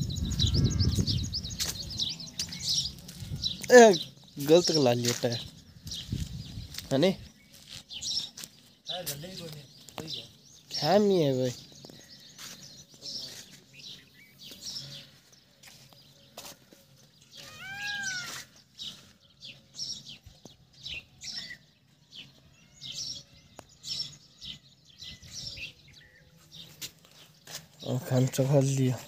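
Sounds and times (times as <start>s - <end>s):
small birds chirping: 0.0s - 29.0s
rising-and-falling animal call: 17.4s - 18.5s.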